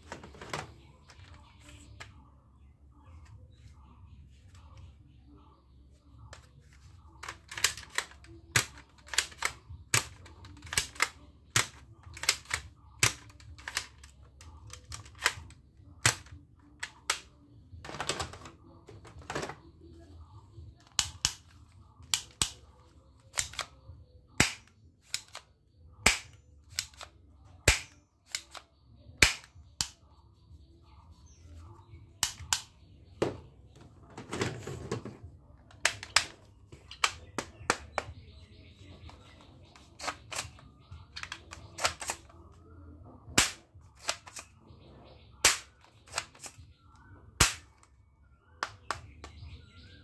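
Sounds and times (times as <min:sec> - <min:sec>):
toy pistol clicks: 0:07.2 - 0:14.1, 0:20.8 - 0:30.0, 0:32.2 - 0:32.7, 0:39.9 - 0:42.3, 0:43.4 - 0:44.6, 0:45.4 - 0:46.6.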